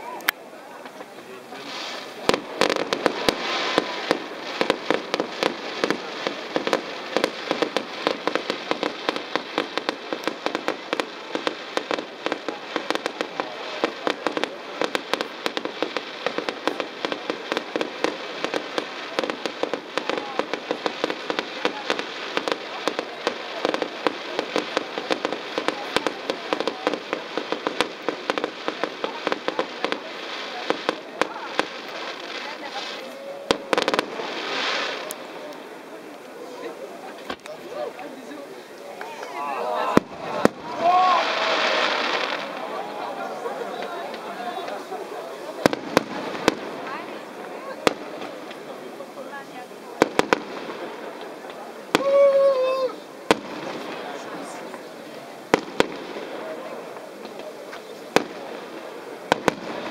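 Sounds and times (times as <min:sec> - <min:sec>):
fireworks bangs: 0:00.0 - 0:59.9
fireworks crackling: 0:00.0 - 0:59.9.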